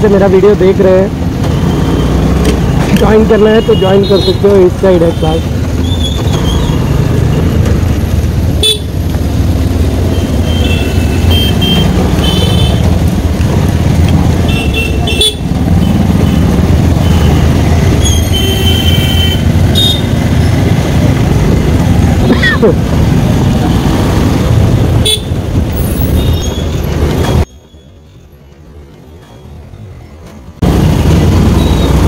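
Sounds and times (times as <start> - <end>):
motorcycle engine and road rumble: 0.0 - 32.0
vehicle horns beeping: 3.0 - 5.5, 8.6 - 8.9, 10.1 - 12.9, 14.4 - 20.3, 25.0 - 26.6.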